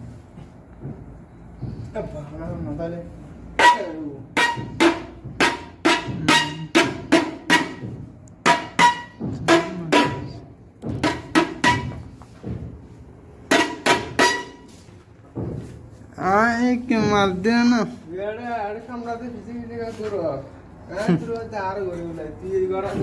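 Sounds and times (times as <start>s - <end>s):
sharp ringing knocks: 3.6s - 12.8s, 13.4s - 14.7s.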